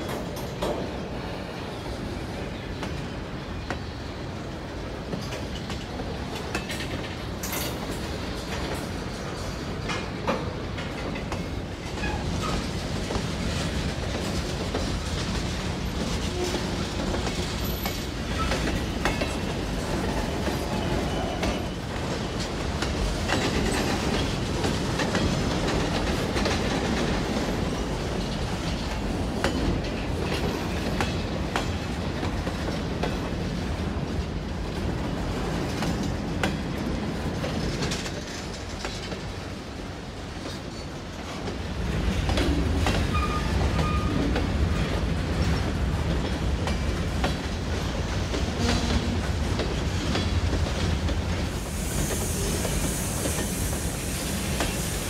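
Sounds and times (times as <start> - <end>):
freight train rumble: 0.0 - 55.0
steel wheels clicking over rail joints: 5.1 - 39.4.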